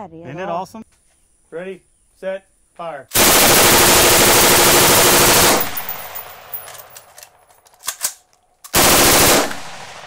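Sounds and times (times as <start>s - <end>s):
rapid gunfire: 3.1s - 6.0s, 8.8s - 10.0s.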